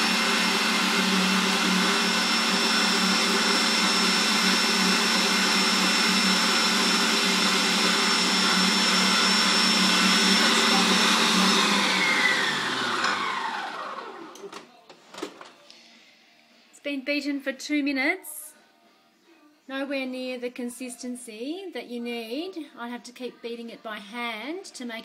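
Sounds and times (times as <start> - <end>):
stand mixer motor whining: 0.0 - 14.5.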